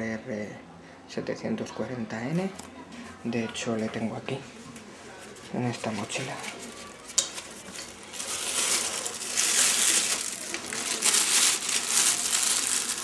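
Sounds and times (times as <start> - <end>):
backpack rustling and crinkling: 5.8 - 13.0.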